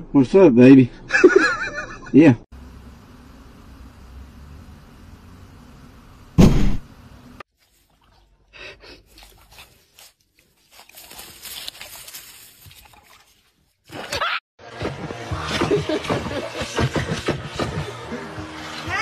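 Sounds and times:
loud thump: 6.4 - 6.9
rustling and scraping: 9.0 - 13.8.

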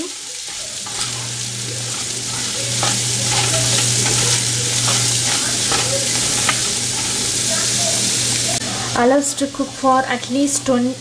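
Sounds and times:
spatula scraping a pan: 0.0 - 8.6
fruit sizzling in oil: 0.0 - 11.0
low steady hum: 0.0 - 11.0.

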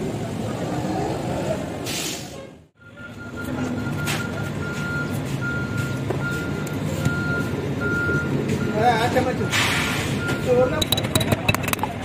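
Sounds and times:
reversing beeper: 2.8 - 11.2.

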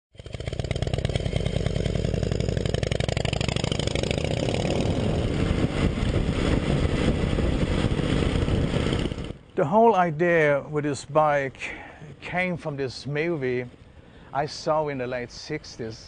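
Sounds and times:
motorcycle engine running: 0.1 - 9.4.

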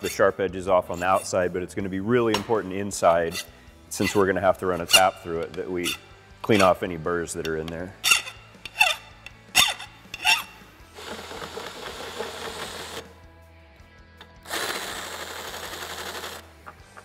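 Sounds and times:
file rasping on steel: 0.9 - 1.5, 3.0 - 6.9, 7.6 - 10.6
cordless drill running: 11.0 - 13.1, 14.5 - 16.4.

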